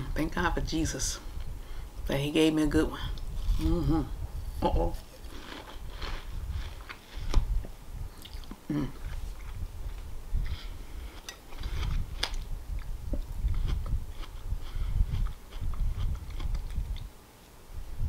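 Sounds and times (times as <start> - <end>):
wet chewing: 8.2 - 17.1.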